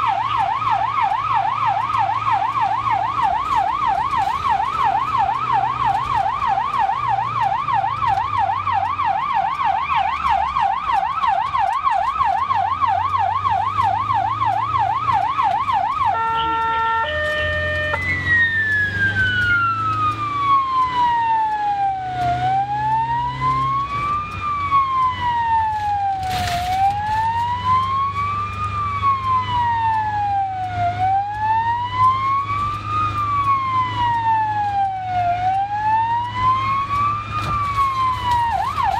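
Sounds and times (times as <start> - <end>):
ambulance siren: 0.0 - 38.9
engine and road hum: 0.0 - 38.9.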